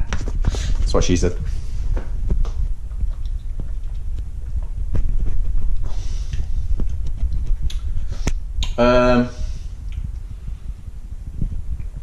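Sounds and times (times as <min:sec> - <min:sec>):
camera handling rumble: 0:04.9 - 0:08.4.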